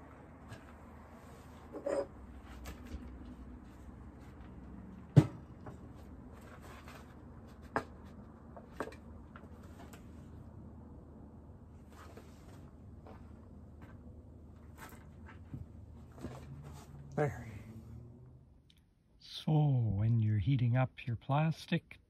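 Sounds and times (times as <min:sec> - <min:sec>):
objects knocking and clunking: 0:04.4 - 0:10.1.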